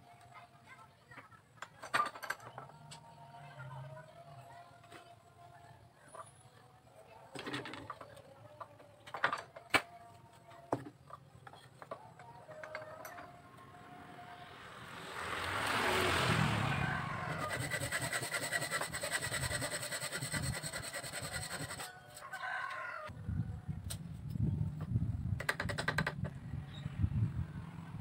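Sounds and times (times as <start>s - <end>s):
hand saw cutting bamboo: 17.3s - 22.0s.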